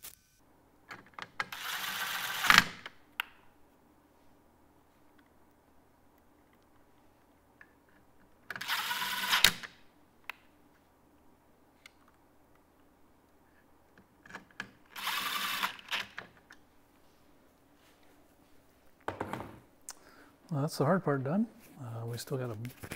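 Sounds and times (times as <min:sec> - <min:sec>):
cordless drill running: 0:01.6 - 0:02.7, 0:08.6 - 0:09.5, 0:15.0 - 0:16.0.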